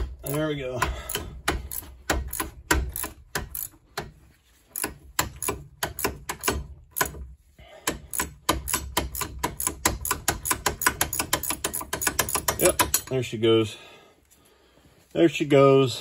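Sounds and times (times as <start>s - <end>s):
ratcheting wrench clicking: 0.1s - 13.2s.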